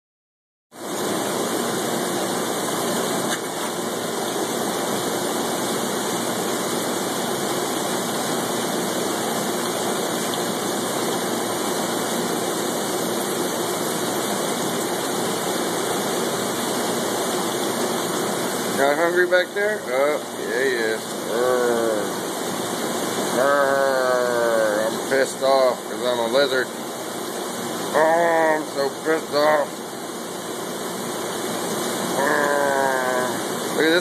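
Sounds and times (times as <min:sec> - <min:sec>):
water pouring into tank: 0:00.8 - 0:19.1.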